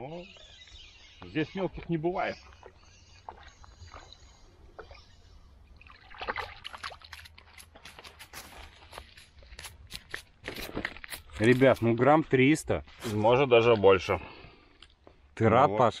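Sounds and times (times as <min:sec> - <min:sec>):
faint water sounds: 0:00.0 - 0:09.6.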